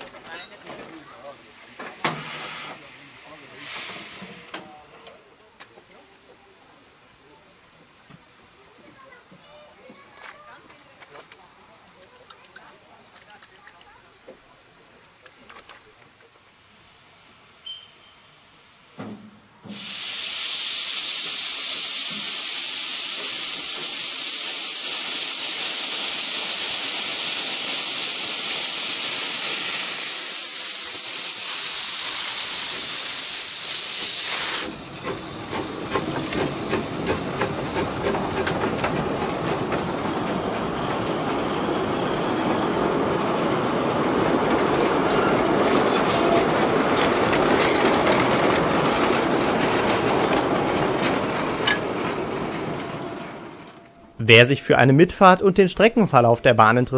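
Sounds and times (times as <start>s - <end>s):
steam hissing from locomotive: 0.0s - 52.4s
wheels clicking over rail joints: 9.9s - 16.3s, 34.7s - 54.0s.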